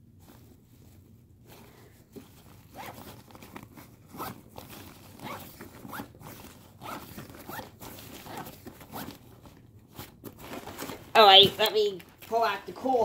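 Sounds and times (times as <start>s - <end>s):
zipper zipping on fabric: 2.6s - 9.2s.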